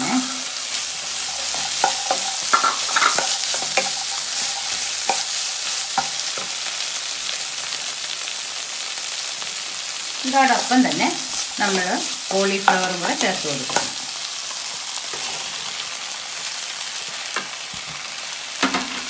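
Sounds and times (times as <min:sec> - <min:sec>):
food sizzling in a pan: 0:00.0 - 0:19.0
wooden spatula scraping pan: 0:01.0 - 0:06.5, 0:14.7 - 0:15.8.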